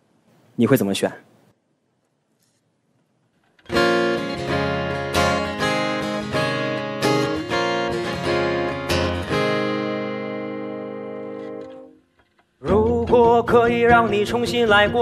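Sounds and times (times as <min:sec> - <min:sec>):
acoustic guitar strumming chords: 0:03.7 - 0:12.0, 0:12.6 - 0:15.0.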